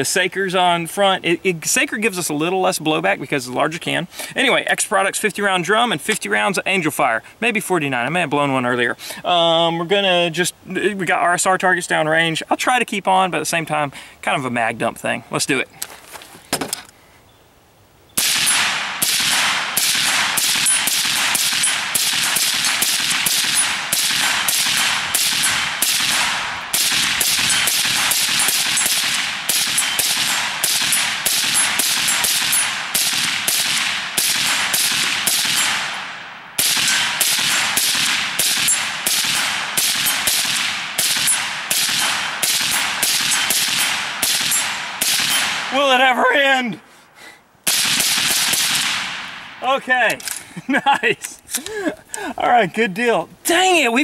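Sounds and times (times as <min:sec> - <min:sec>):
suppressed rifle rapid fire: 0:18.2 - 0:45.7, 0:47.7 - 0:49.4.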